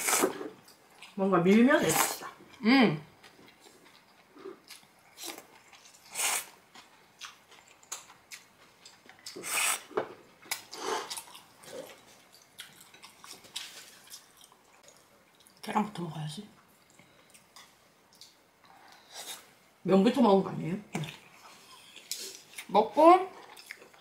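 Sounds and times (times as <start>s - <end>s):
chewing and chopstick sounds: 3.2s - 15.8s, 23.4s - 24.0s.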